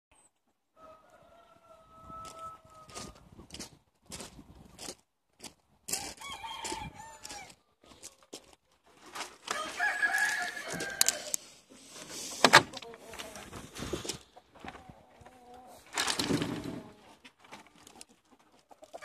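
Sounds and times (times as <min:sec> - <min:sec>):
roosters crowing: 0:00.8 - 0:03.2, 0:05.9 - 0:07.6, 0:09.4 - 0:11.4
footsteps crunching on gravel: 0:02.2 - 0:11.4.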